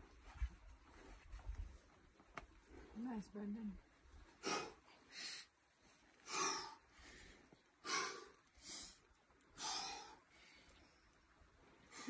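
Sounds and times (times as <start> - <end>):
person breathing hard: 4.4 - 5.5, 6.2 - 9.0, 9.6 - 10.7.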